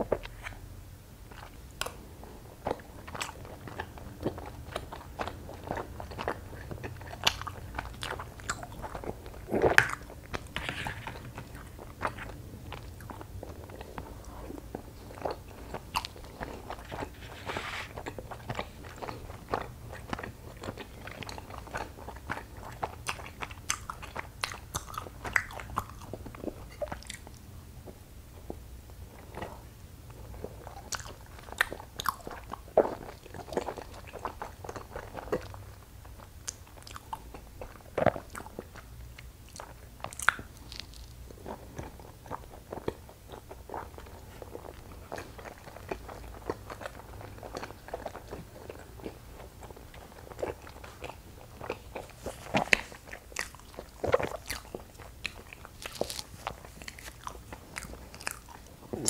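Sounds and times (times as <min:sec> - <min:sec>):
chewing sticky rice cake: 0:01.2 - 0:59.0.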